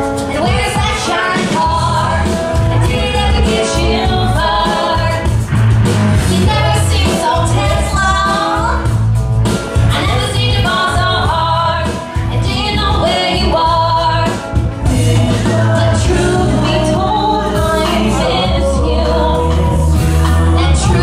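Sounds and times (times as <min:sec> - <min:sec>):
steady bass beat: 0:01.7 - 0:21.0
person singing: 0:12.4 - 0:21.0.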